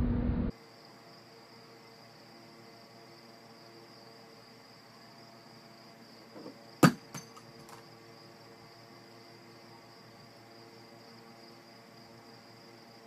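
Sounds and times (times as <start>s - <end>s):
sharp knock on wooden dresser: 6.4s - 7.2s.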